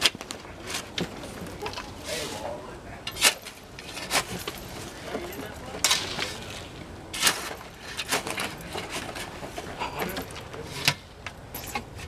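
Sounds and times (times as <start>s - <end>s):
shovel scraping gravelly dirt: 3.1s - 5.1s, 5.8s - 9.8s.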